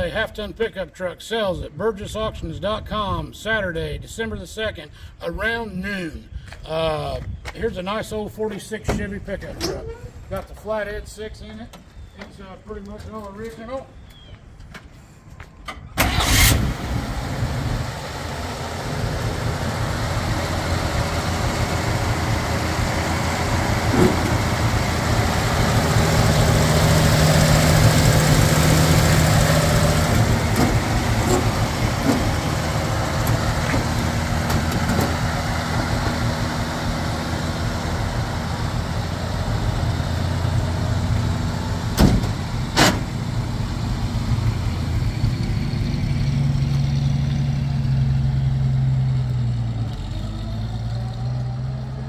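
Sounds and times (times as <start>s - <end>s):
truck engine idling: 15.6s - 52.0s
truck engine pulling away: 15.8s - 52.0s.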